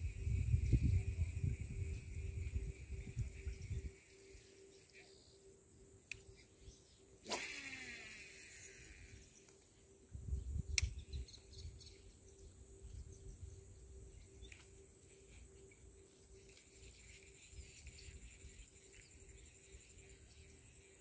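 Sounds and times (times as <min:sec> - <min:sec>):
low microphone rumble: 0:00.0 - 0:04.0
high-pitched insect drone: 0:00.0 - 0:21.0
sharp click: 0:10.7 - 0:11.2.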